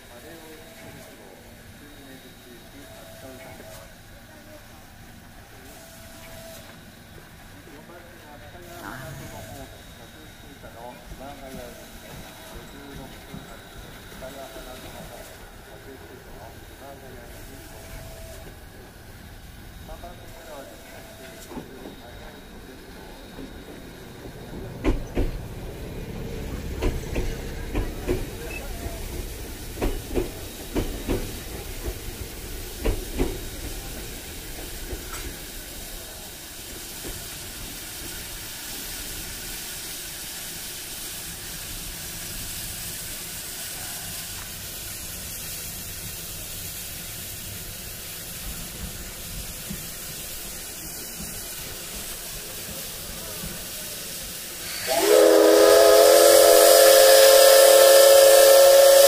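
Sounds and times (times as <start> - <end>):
steam hissing: 0.0 - 59.0
steam whistle blast: 54.6 - 59.0.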